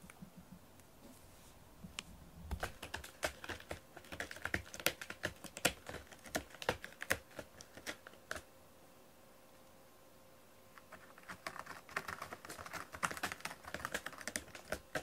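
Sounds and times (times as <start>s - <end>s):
cat claws scratching cardboard: 2.5s - 8.4s, 10.8s - 15.0s.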